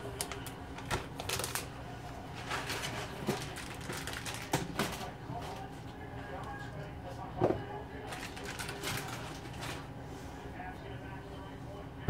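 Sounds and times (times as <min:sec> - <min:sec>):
plastic package rustling: 0:00.0 - 0:01.7, 0:02.3 - 0:05.7, 0:08.1 - 0:09.9.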